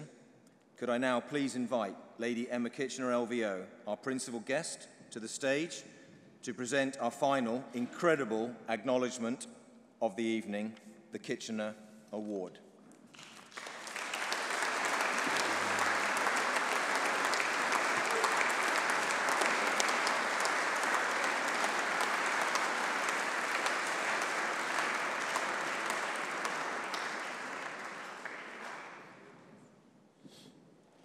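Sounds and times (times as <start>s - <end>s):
audience applauding: 13.1s - 29.4s.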